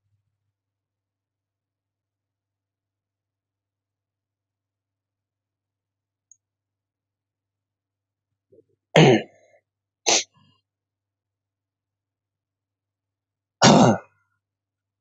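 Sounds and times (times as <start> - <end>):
man clearing throat and coughing: 9.0 - 9.4, 13.6 - 14.2.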